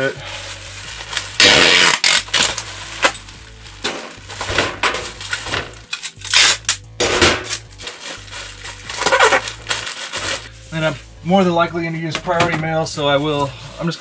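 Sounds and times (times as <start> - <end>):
bubble wrap crinkling: 0.0 - 14.0
packing tape screeching off gun: 1.0 - 3.5, 4.1 - 10.6.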